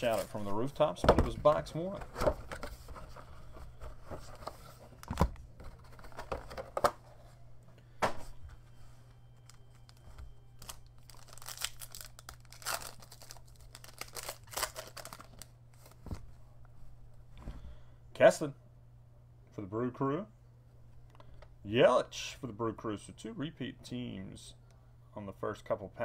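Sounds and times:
faint low hum: 0.0s - 26.0s
foil wrapper crinkling and tearing: 10.6s - 16.0s.

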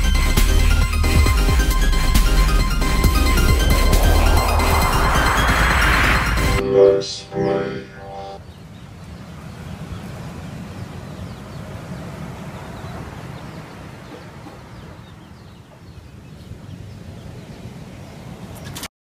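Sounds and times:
steady low rumbling: 1.8s - 6.7s.

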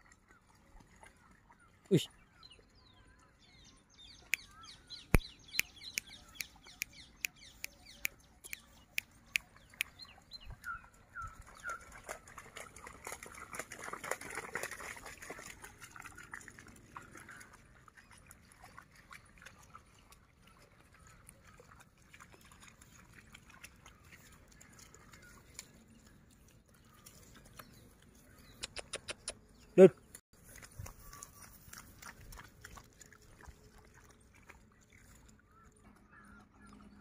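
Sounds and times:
dog splashing through water: 9.4s - 28.3s, 30.4s - 35.4s.

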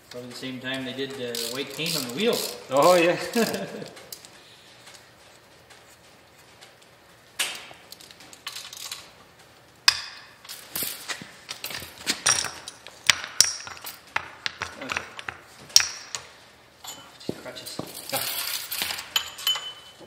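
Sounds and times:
metal parts clinking and knocking: 1.3s - 4.0s, 7.9s - 9.1s, 9.9s - 20.0s.

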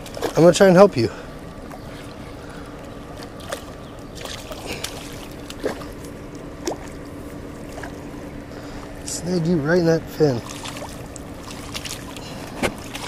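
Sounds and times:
water sloshing at river edge: 0.0s - 9.2s, 10.1s - 13.0s
steady low hum: 0.0s - 13.0s
fish splashing: 1.6s - 8.2s, 10.4s - 13.0s.

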